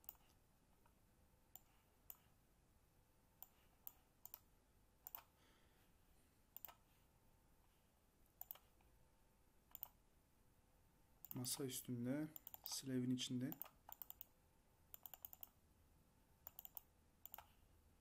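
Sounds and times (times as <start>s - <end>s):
computer mouse clicks: 0.0s - 0.4s, 3.4s - 5.3s, 6.6s - 6.8s, 8.4s - 8.7s, 9.7s - 10.0s, 12.4s - 12.8s, 13.5s - 14.3s, 14.9s - 15.6s, 16.4s - 17.6s.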